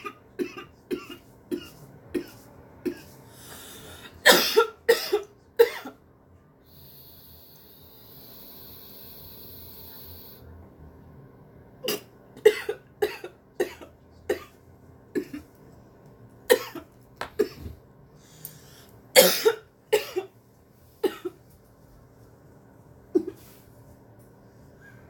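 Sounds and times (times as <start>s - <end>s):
woman coughing: 0.0s - 3.1s, 4.2s - 6.0s, 11.8s - 14.6s, 15.2s - 15.5s, 16.5s - 17.7s, 19.2s - 20.3s, 21.0s - 21.4s.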